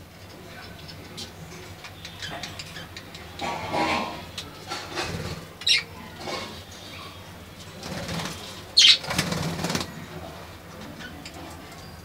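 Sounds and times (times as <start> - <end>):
bird wings flapping: 7.8 - 8.4, 9.0 - 9.9.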